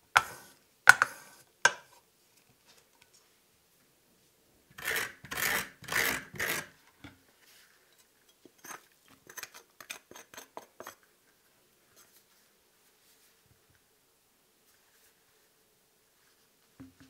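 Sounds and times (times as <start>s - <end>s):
metal spoon scraping squash: 4.7s - 6.8s, 8.5s - 11.0s.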